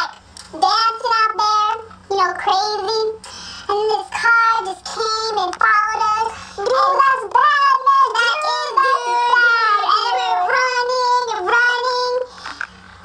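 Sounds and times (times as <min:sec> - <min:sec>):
high-pitched sped-up voices: 0:06.6 - 0:11.1.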